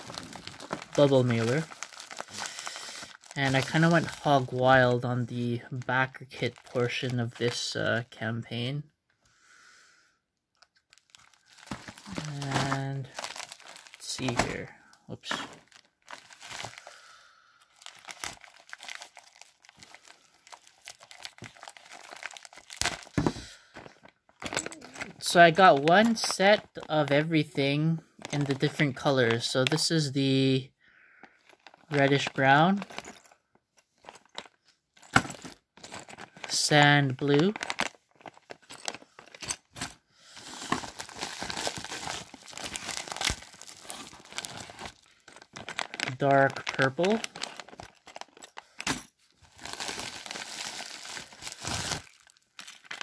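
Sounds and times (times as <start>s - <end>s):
packaging crinkling: 0.0s - 4.5s, 10.6s - 14.7s, 15.3s - 17.0s, 17.7s - 27.2s, 31.2s - 53.0s.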